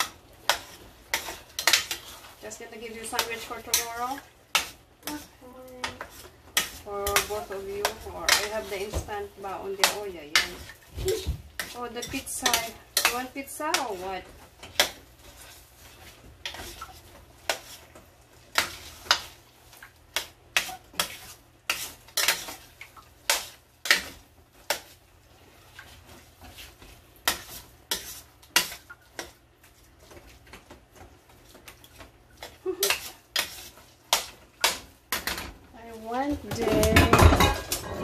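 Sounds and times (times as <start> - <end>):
spoon scraping metal pot: 11.6 - 14.2.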